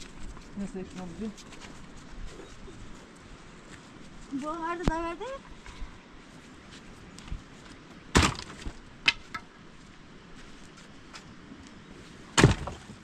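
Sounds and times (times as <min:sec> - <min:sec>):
dry tree branches clattering: 0:08.1 - 0:09.5, 0:12.4 - 0:13.0.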